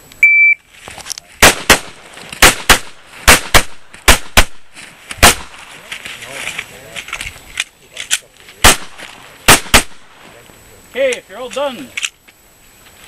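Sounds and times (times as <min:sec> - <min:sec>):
shot timer beep: 0:00.2 - 0:00.6
pistol shots: 0:01.4 - 0:05.7, 0:08.6 - 0:10.2.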